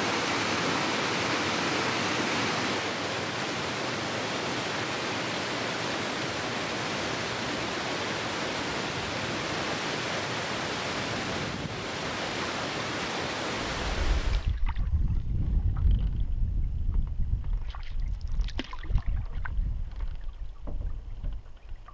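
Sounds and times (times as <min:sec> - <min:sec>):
wind rumble on microphone: 0:11.2 - 0:12.1, 0:13.6 - 0:21.9.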